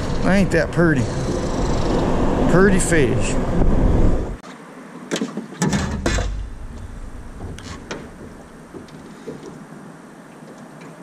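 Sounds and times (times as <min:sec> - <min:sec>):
knocks and rustling in a boat: 0:05.1 - 0:09.6
steady low rumble: 0:06.1 - 0:09.0.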